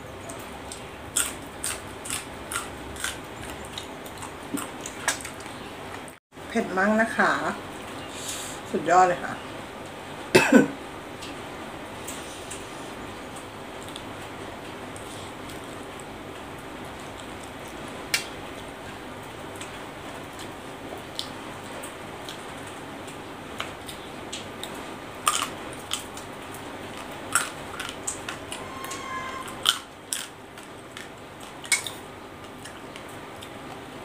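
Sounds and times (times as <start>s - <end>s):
chewing and crunching: 0.2s - 6.1s, 17.0s - 28.6s, 29.6s - 34.0s
background hiss: 8.0s - 8.8s.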